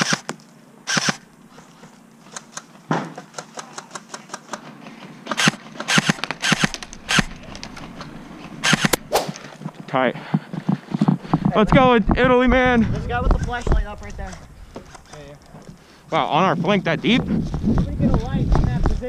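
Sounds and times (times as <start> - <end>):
airsoft gun shots: 5.3 - 7.4, 8.6 - 9.4.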